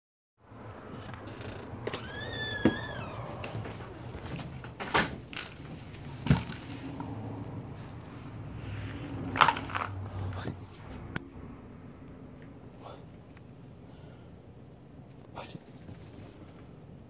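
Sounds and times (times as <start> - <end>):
squeaky door hinge: 1.3 - 3.9.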